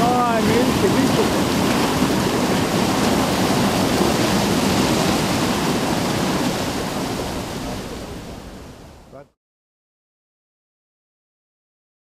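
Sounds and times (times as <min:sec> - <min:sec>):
water rushing down wooden chute: 0:00.0 - 0:09.0.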